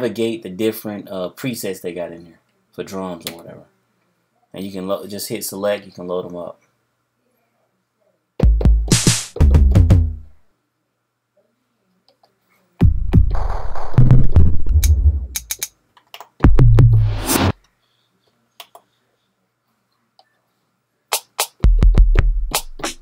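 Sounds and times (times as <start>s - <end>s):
deep drum machine bass hits: 8.4s - 10.3s, 12.8s - 15.4s, 16.4s - 17.5s, 21.6s - 23.0s
sharp drum machine clicks: 12.8s - 15.7s, 21.1s - 23.0s
rising noise sweep: 16.6s - 17.5s.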